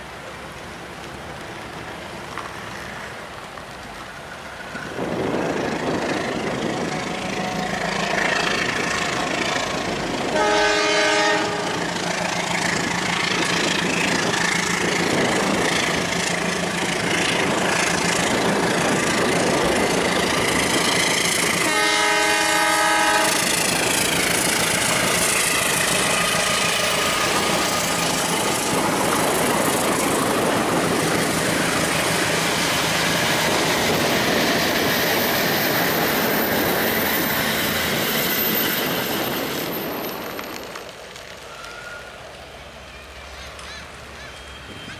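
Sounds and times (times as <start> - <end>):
toy train horn: 10.3 - 11.8, 21.6 - 23.6.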